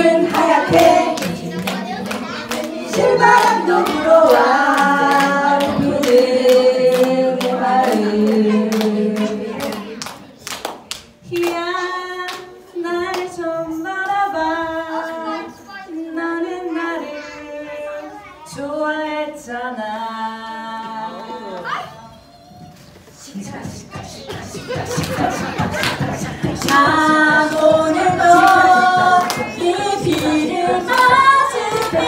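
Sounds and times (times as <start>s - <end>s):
woman singing into microphone: 0.0s - 9.9s, 11.2s - 21.6s, 25.8s - 32.0s
women singing in harmony: 0.0s - 10.0s, 11.2s - 21.6s, 24.6s - 32.0s
rhythmic clapping: 0.0s - 14.4s, 23.4s - 32.0s.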